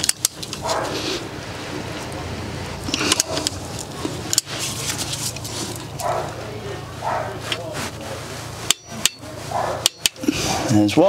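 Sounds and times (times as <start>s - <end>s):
steady low hum: 0.0s - 11.0s
sharp metal knocks: 8.7s - 10.2s
metal clicks and clinks: 9.8s - 10.2s.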